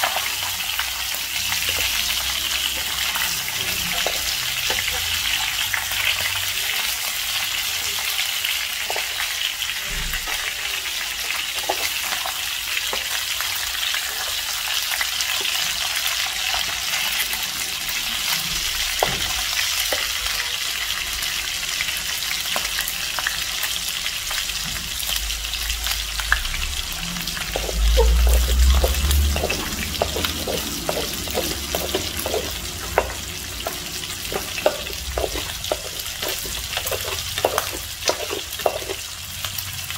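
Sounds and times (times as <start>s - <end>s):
fish sizzling in frying pan: 0.0s - 39.9s
metal spatula scraping pan: 27.2s - 39.0s.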